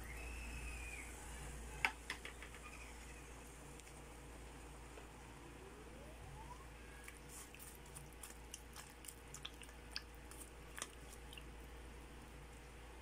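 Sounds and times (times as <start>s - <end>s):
low steady hum: 0.0s - 13.0s
wet clicks and pops of simmering: 8.0s - 11.5s.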